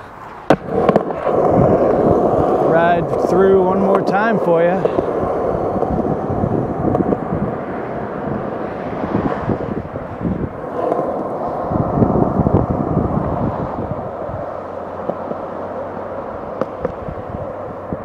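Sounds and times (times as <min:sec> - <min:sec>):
skateboard wheels rolling on concrete: 0:00.0 - 0:18.0.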